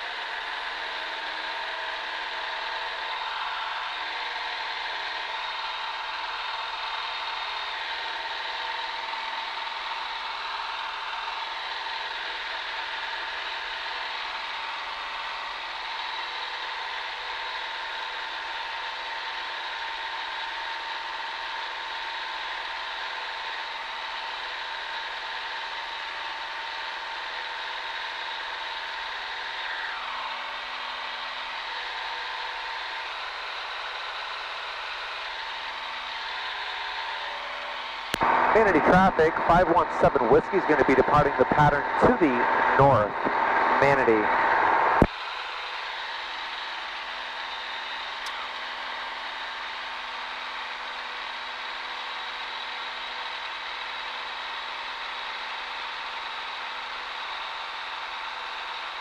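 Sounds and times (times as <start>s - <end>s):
propeller plane engine droning: 0.0s - 59.0s
high whine: 35.2s - 45.1s.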